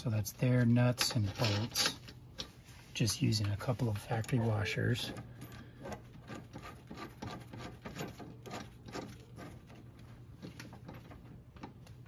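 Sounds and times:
small metallic clicks and scratches: 0.9s - 2.5s, 3.4s - 12.0s
gloved fingers rubbing hardware: 5.8s - 11.4s.

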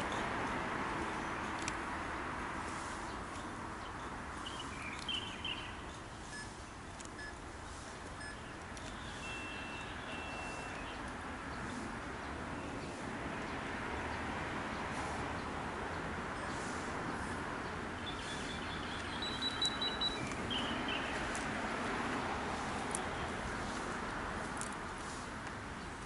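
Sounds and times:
distant traffic hum: 0.0s - 26.0s
bird chirps: 3.4s - 6.5s, 8.2s - 11.1s, 18.0s - 21.3s.

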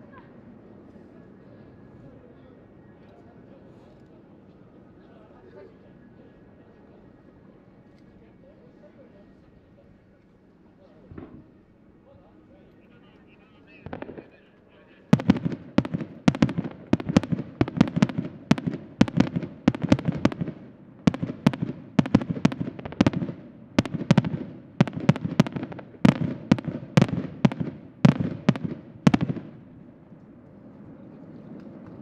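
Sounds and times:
fireworks bangs with rumbling echo: 11.1s - 11.7s, 13.7s - 29.9s.

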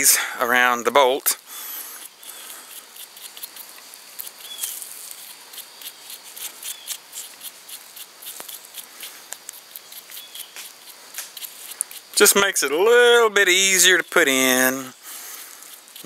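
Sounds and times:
gloved fingers rubbing paste on bolt: 1.7s - 16.0s.

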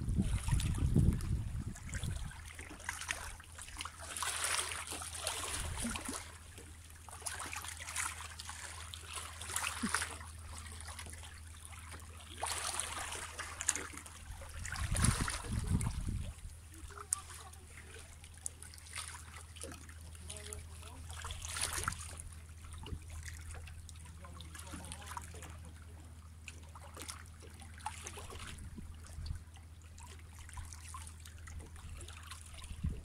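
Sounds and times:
waves lapping against rocks: 0.0s - 33.0s.

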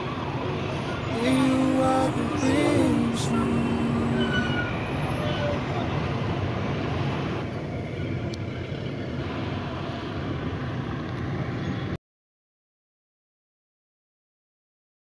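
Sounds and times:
car engine and road noise: 0.0s - 12.0s.

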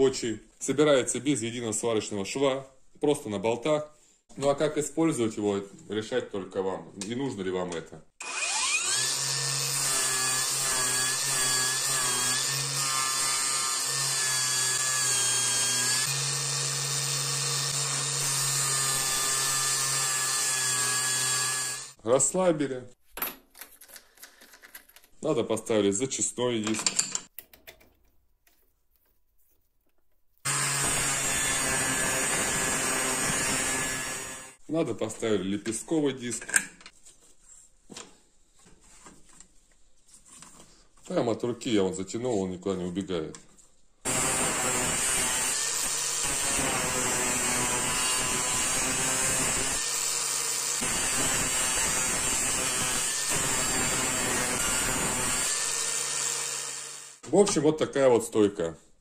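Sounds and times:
angle grinder grinding steel: 8.2s - 22.0s, 30.5s - 34.6s, 44.1s - 57.2s.

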